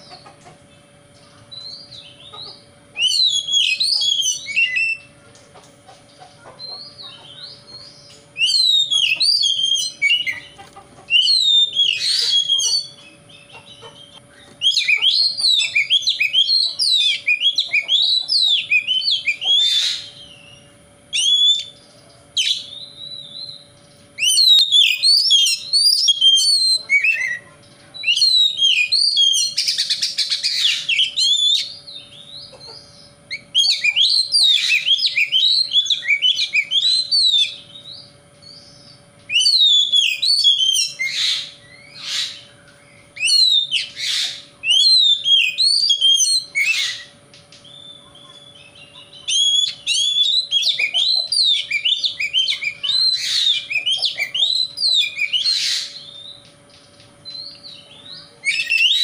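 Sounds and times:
bird singing whistled notes: 3.0 - 5.1, 6.8 - 10.4, 11.1 - 27.4, 28.0 - 59.0
harsh rasping bird notes: 39.3 - 47.2.

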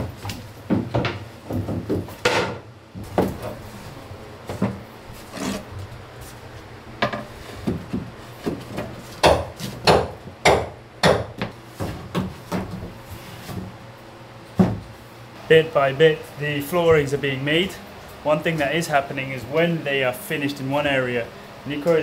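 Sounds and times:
plywood panels knocking on wood: 0.7 - 3.4.

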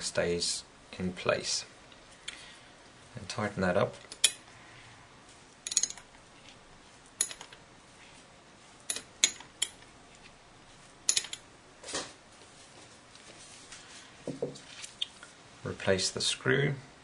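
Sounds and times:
metal spanner clicking on nut: 5.6 - 6.1, 7.2 - 7.6, 8.9 - 9.8, 11.1 - 11.4.

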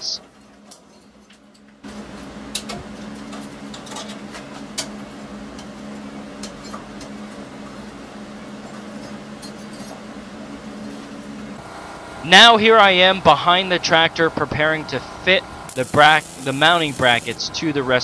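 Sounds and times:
drill press motor hum: 15.0 - 17.4.

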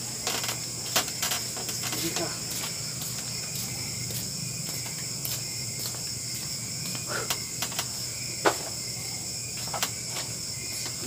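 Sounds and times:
crickets chirring: 0.0 - 11.0.

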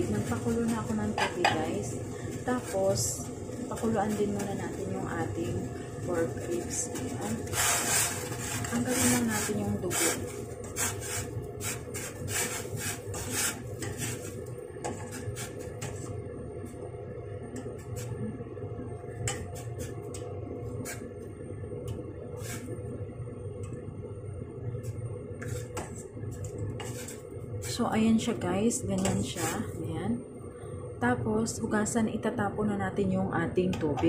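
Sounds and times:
low rumble of gas flame: 0.0 - 34.0
metal ladle scraping a pot: 2.5 - 16.2, 20.8 - 21.1, 25.4 - 27.8.

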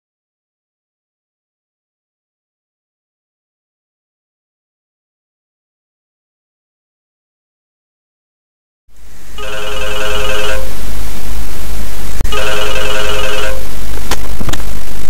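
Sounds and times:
low hum and hiss: 8.9 - 15.0
telephone ringer trilling: 9.4 - 10.7, 12.3 - 13.7.

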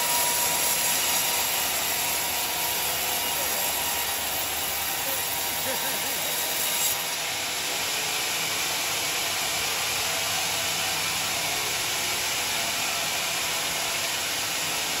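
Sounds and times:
band saw cutting log: 0.0 - 11.4.

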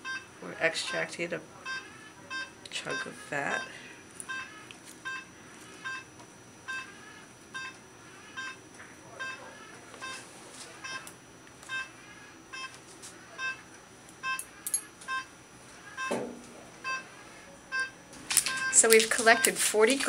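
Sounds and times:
monitor beeping: 0.9 - 20.0.

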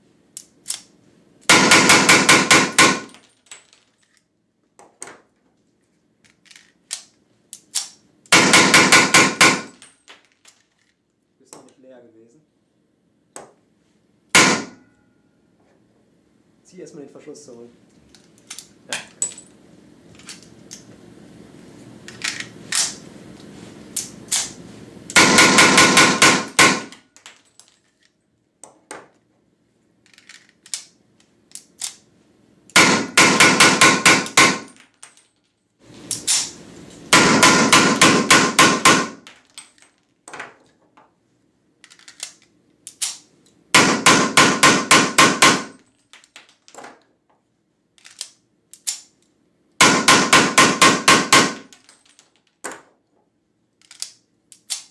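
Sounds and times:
gun handling clicks: 0.4 - 0.9, 6.2 - 8.0, 18.1 - 19.4, 30.0 - 32.0, 41.8 - 43.6, 48.0 - 49.3, 53.8 - 54.9.

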